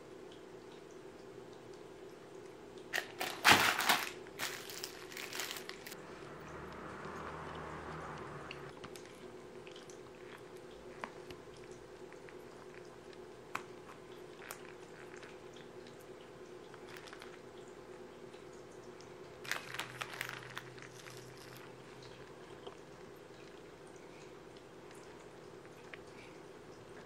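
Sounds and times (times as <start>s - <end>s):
faint steady hum: 0.0s - 27.0s
plastic film crinkling: 3.0s - 6.0s, 19.4s - 21.7s.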